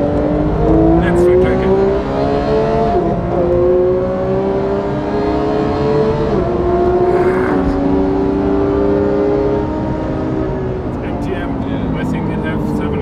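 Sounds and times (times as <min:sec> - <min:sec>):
car engine revving high: 0:00.0 - 0:12.8
quick gear upshifts: 0:00.0 - 0:13.0.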